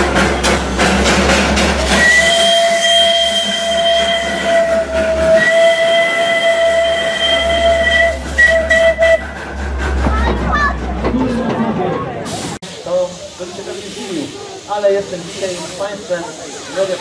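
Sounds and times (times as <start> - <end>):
steam locomotive hissing and exhausting: 0.0 - 17.0
steam whistle long blast: 1.9 - 9.2.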